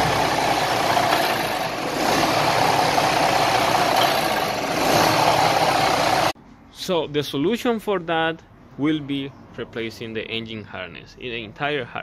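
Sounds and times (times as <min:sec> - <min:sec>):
diesel engine idling unevenly: 0:00.0 - 0:06.4.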